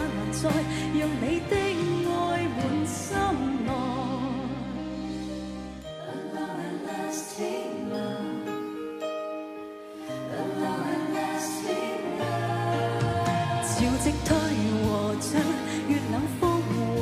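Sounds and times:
woman singing pop ballad: 0.0s - 4.9s, 10.3s - 17.0s.

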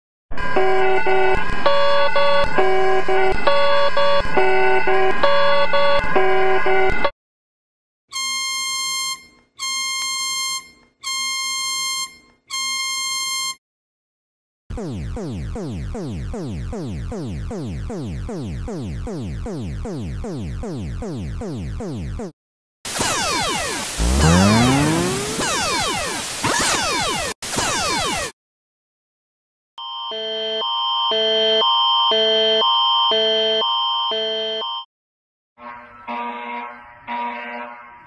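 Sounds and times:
electronic multi-note alert chords: 14.7s - 22.3s, 23.1s - 26.2s
falling sweep alert tone: 14.7s - 22.3s, 23.0s - 28.3s
long alert beeps: 24.0s - 26.0s.

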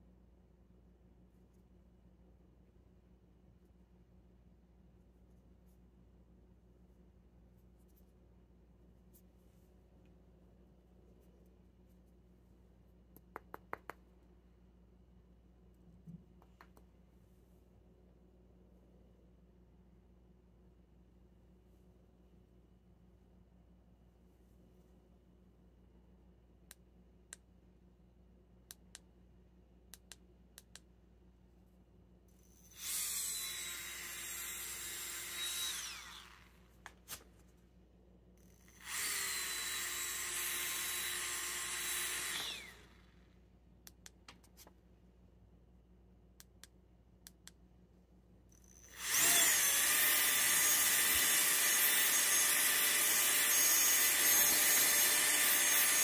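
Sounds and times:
electric air blower whining: 38.8s - 42.9s.

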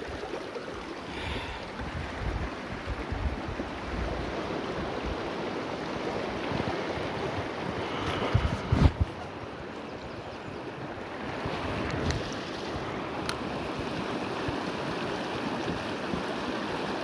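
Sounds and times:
river water rushing over stones: 0.0s - 9.8s, 10.5s - 17.0s
wind buffeting microphone: 1.8s - 5.3s, 5.9s - 9.7s.

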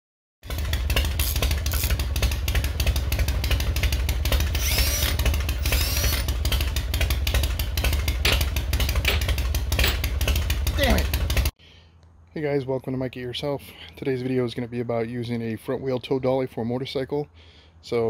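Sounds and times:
motorcycle engine running: 0.4s - 11.6s.

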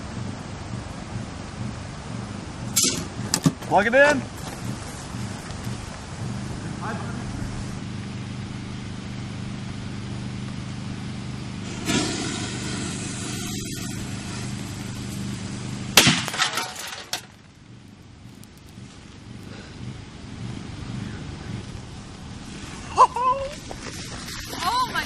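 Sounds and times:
steady low hum: 0.0s - 25.0s
firecracker bang: 2.7s - 3.7s, 11.6s - 17.4s
brief hiss: 11.6s - 15.8s
oven cracking and clattering: 11.6s - 17.5s.

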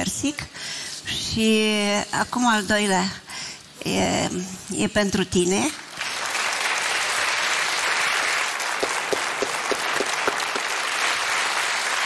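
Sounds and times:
audience applauding: 5.9s - 12.0s
loud single claps: 8.6s - 11.6s.

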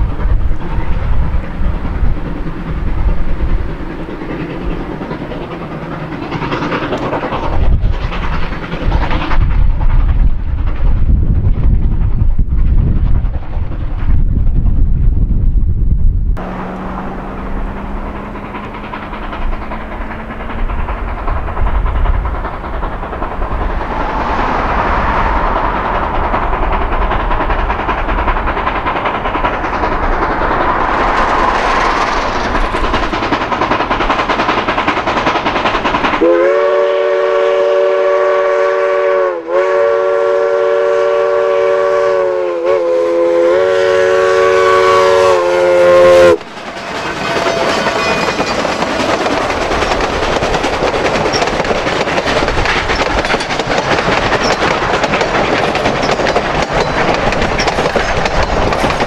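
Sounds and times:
train rumbling and hissing: 0.0s - 59.0s
steam locomotive chime whistle: 36.2s - 48.6s.

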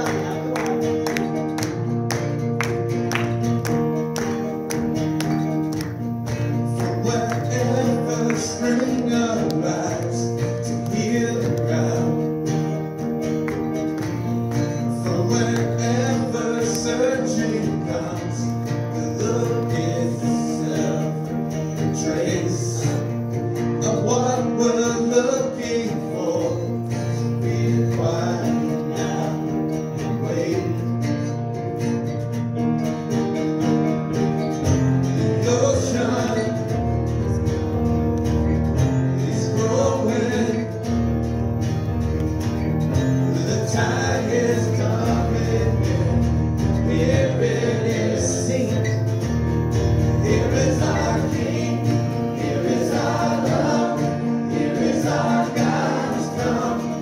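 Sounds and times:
men singing: 0.0s - 1.4s, 6.7s - 12.8s, 14.5s - 31.1s, 35.1s - 37.4s, 39.0s - 41.2s, 43.1s - 57.0s
strummed acoustic guitar: 0.0s - 57.0s.

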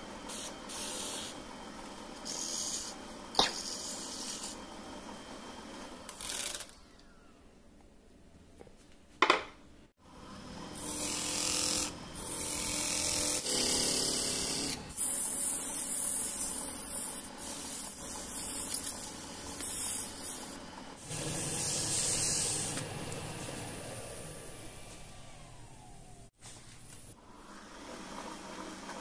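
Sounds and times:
wood lathe running: 21.0s - 26.3s.

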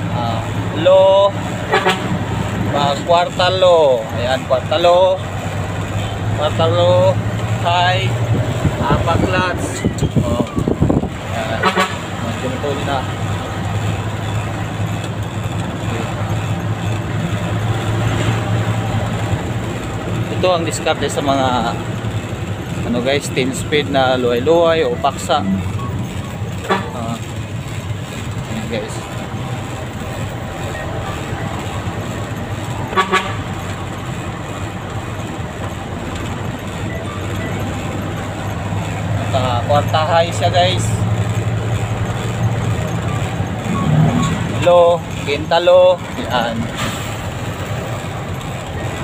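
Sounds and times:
diesel engine humming: 0.0s - 49.0s
horn tooting: 1.6s - 2.9s, 9.2s - 12.8s, 24.4s - 27.3s, 32.8s - 33.8s.

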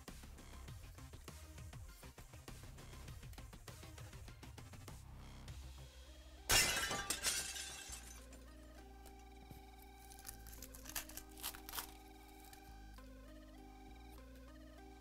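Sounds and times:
background music with held notes: 0.0s - 15.0s
card pack wrapper tearing: 10.0s - 12.7s
wrapper crinkling: 10.0s - 12.7s.

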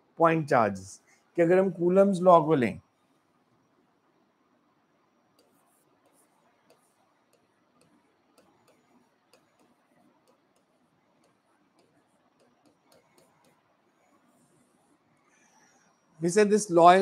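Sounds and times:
stylus tapping on screen: 5.4s - 14.3s.

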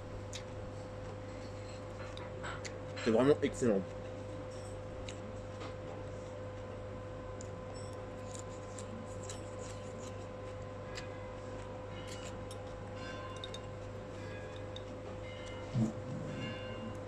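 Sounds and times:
steady hum: 0.0s - 17.0s
chewing vegetables: 7.3s - 17.0s.

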